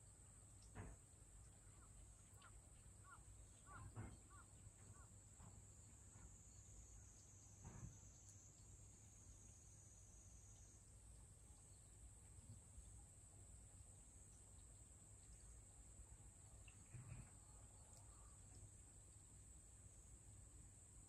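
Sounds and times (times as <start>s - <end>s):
insect drone: 1.6s - 21.0s
light rain: 10.3s - 21.0s.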